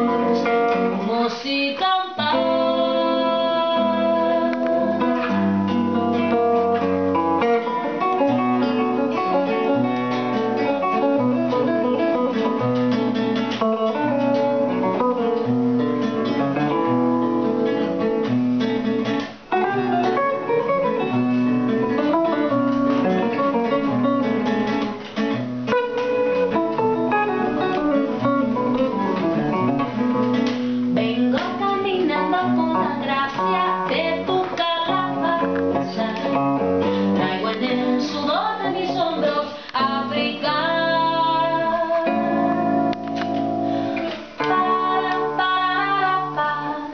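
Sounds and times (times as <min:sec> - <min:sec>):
woman singing: 0:00.0 - 0:06.1, 0:30.9 - 0:42.7, 0:44.0 - 0:46.9
acoustic guitar strumming: 0:00.0 - 0:46.9
electric guitar through amplifier: 0:00.0 - 0:46.9.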